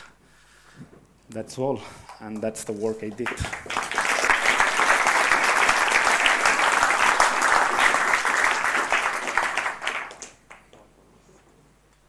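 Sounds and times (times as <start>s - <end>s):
audience applauding: 3.0s - 10.8s.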